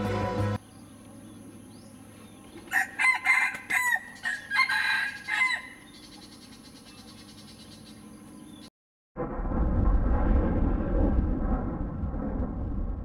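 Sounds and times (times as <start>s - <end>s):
rooster crowing: 2.7s - 5.9s.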